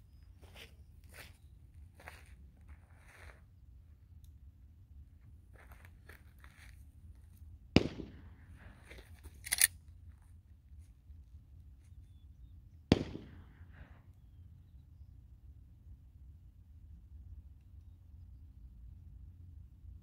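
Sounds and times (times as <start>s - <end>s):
gunshot cracks with echo: 7.8s - 8.8s, 12.9s - 13.8s.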